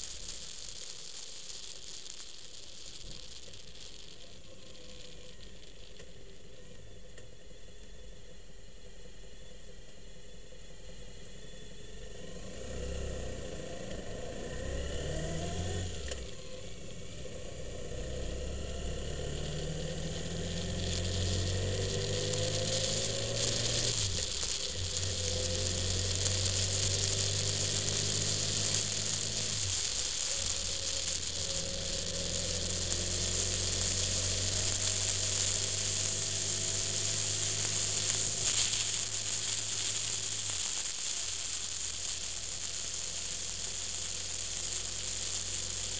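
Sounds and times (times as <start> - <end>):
vehicle engine accelerating: 10.8 - 45.9
wind and road noise: 12.1 - 45.9.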